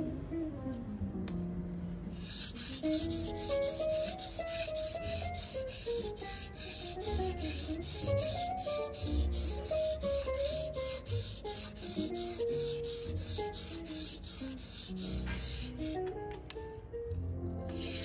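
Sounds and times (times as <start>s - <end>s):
background music: 0.0s - 18.0s
knife scraping on whetstone: 2.1s - 16.1s, 17.6s - 18.0s.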